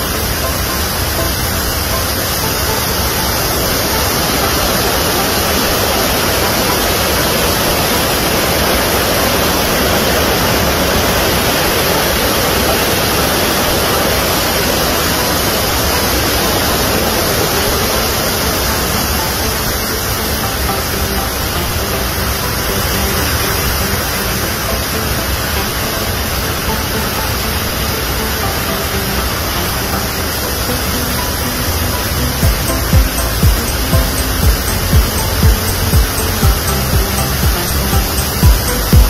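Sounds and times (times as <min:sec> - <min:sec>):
whitewater rapids roaring: 0:00.0 - 0:39.0.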